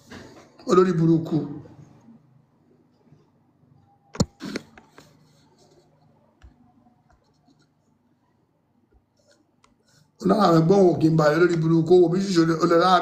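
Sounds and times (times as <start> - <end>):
light scratching: 4.4 - 6.2.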